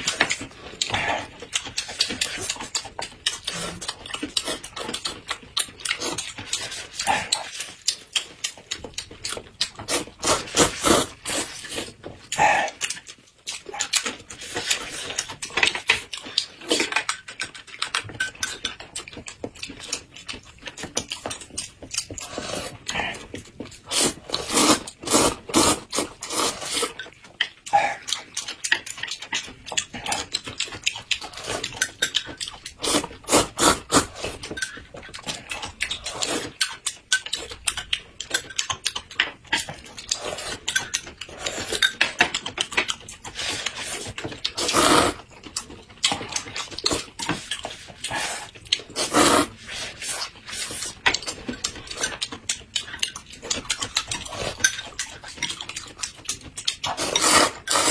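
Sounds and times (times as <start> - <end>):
chewing noises: 0.0 - 57.9
noodles slurped: 9.6 - 15.8, 22.1 - 27.1, 32.7 - 34.5, 35.2 - 36.7, 43.2 - 52.2, 53.5 - 57.9.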